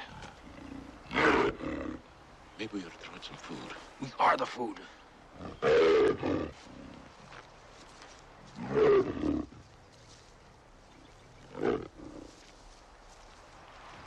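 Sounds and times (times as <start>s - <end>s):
bear roaring: 0.0s - 2.0s, 5.4s - 7.0s.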